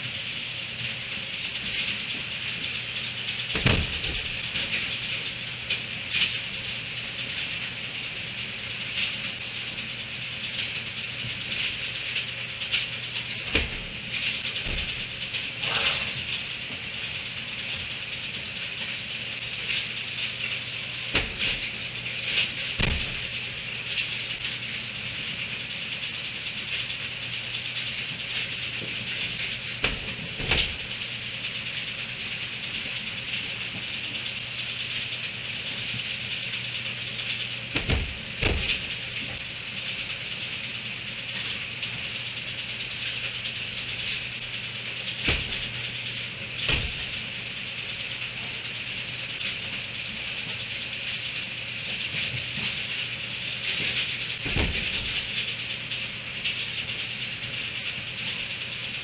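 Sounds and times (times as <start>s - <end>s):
steady high hiss: 0.0s - 59.0s
metal hay rack knocking: 3.5s - 5.0s, 13.3s - 16.4s, 20.4s - 24.2s, 28.8s - 31.1s, 37.2s - 39.4s, 44.0s - 47.4s, 53.8s - 55.5s.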